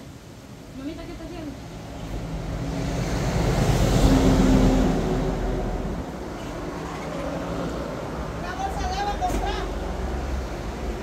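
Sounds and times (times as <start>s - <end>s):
motor vehicle passing by: 2.0s - 8.8s.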